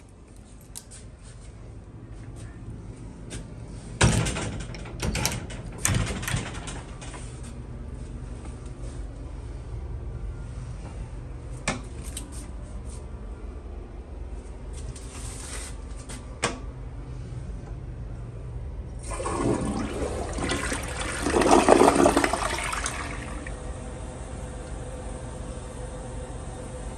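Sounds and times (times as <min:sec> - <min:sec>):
toilet flushing: 0:19.0 - 0:24.1.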